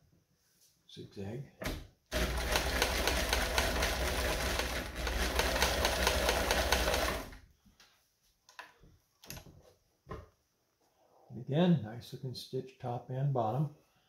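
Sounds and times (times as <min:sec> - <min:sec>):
sewing machine running: 0:02.1 - 0:07.4.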